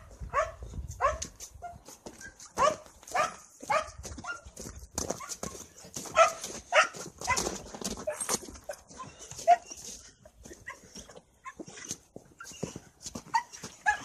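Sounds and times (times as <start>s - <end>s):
footsteps: 0.0s - 14.0s
dog whining and yipping: 8.0s - 9.9s, 10.5s - 14.0s.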